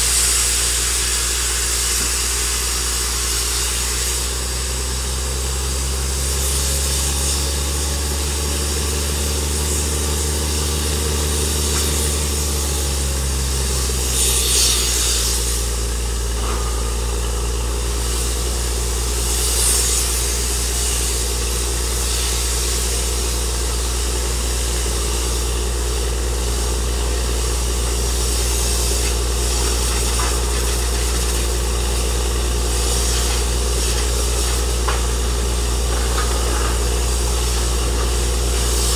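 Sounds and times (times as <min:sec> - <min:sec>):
drilling rig engine running: 0:00.0 - 0:38.9
short hissing bursts: 0:27.6 - 0:35.4.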